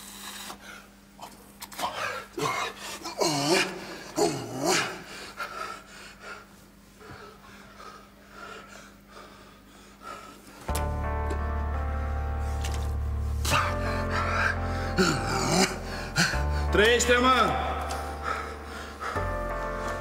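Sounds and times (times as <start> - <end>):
man panting heavily: 1.8 - 10.7, 13.4 - 16.8, 18.0 - 20.0
man's strained cries and gasps: 13.5 - 16.8.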